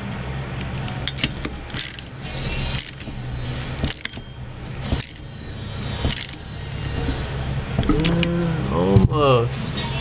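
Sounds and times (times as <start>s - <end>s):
hand ratchet clicking: 0.6s - 8.2s.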